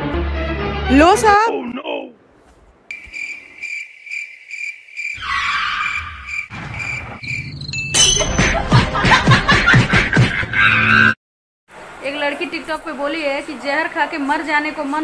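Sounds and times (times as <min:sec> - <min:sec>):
cricket chirping: 0:02.9 - 0:07.9.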